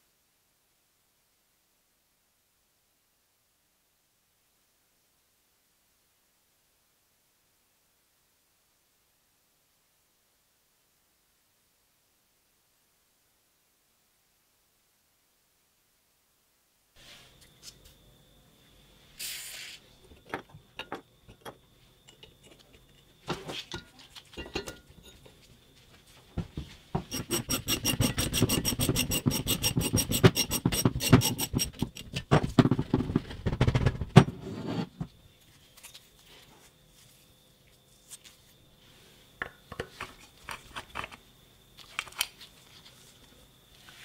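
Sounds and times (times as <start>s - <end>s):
short hiss: 19.1s - 19.9s.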